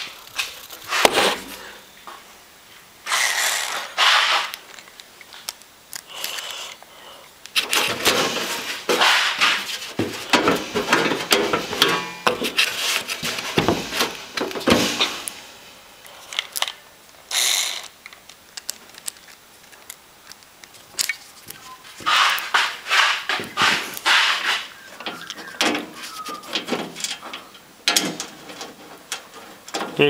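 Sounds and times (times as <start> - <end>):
screwdriver clicking and scraping: 3.1 - 6.8, 16.1 - 25.4.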